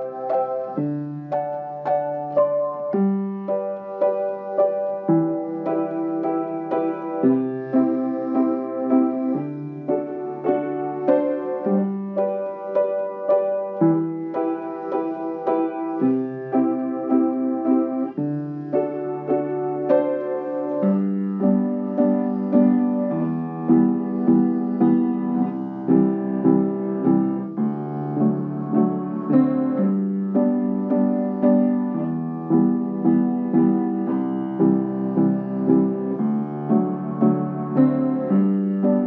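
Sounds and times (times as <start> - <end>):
slow piano chords: 0.0 - 39.0.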